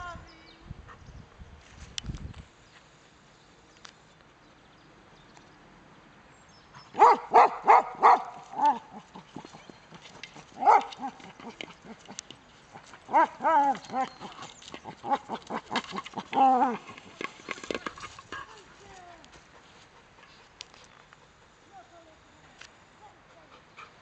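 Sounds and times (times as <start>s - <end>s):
dog barking: 7.0s - 8.9s, 10.6s - 11.2s, 13.1s - 13.7s.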